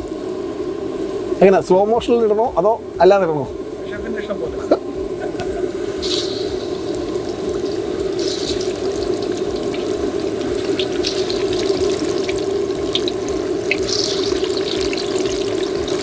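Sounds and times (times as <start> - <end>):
chicken sizzling in hot oil: 4.8 - 16.0
oil crackling and popping: 5.4 - 16.0.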